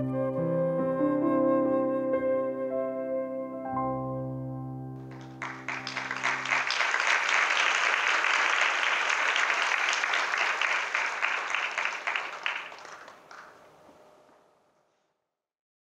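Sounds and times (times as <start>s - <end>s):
audience applauding: 5.0s - 14.4s.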